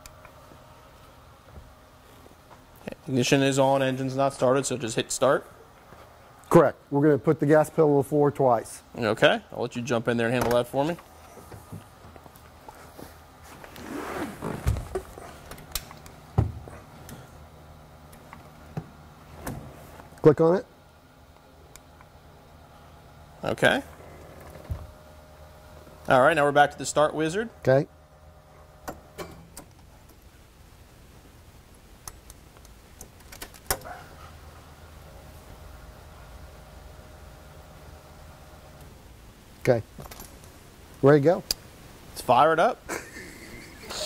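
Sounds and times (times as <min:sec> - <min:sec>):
low steady hum: 0:00.0 - 0:44.0
car seat creaking: 0:13.7 - 0:15.1.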